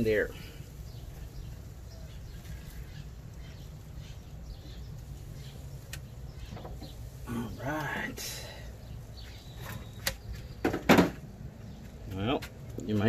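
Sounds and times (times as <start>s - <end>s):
bird chirps: 0.0s - 12.8s
steady low rumble: 0.0s - 13.0s.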